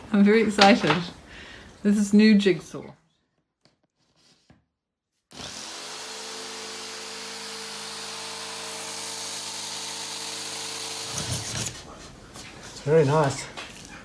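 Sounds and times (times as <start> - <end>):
jigsaw cutting wood: 5.3 - 11.8.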